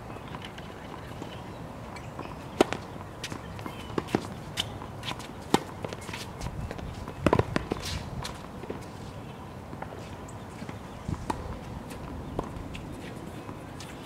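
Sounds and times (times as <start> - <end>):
tennis ball bouncing on hard court: 2.2 - 8.8, 10.7 - 12.8
tennis ball hit with racket: 2.6 - 6.3.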